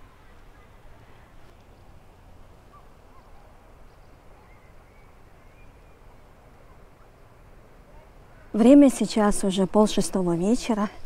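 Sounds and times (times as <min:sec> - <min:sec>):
distant bird chirps: 0:00.1 - 0:07.5.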